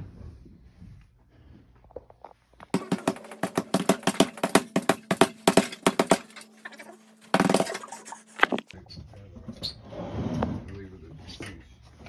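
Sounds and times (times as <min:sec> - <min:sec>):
punches on heavy punching bag: 0:02.8 - 0:06.3.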